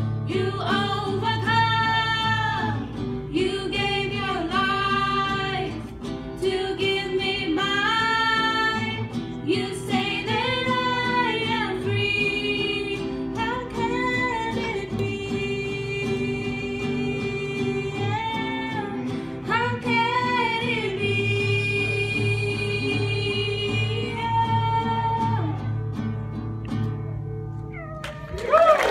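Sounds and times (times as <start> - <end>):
acoustic guitar: 0.0 - 28.8
women singing together: 0.2 - 25.6.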